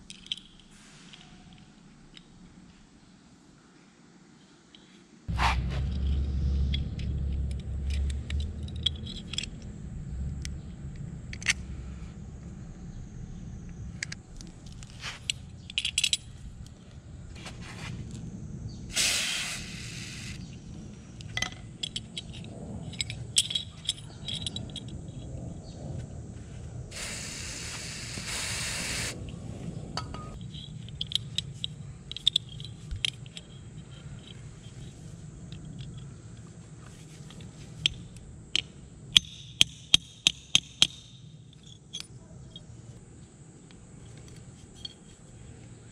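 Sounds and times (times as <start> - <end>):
metallic clinks and scrapes: 0.0 - 2.3, 4.8 - 12.2, 13.9 - 17.5, 21.1 - 25.8, 30.0 - 42.8, 44.0 - 45.6
aerosol spray hissing: 18.9 - 20.4, 26.9 - 29.2.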